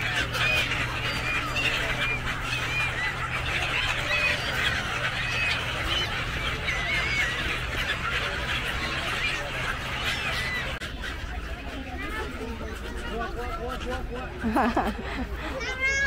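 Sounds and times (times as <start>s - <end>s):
gulls squawking: 0.0s - 16.0s.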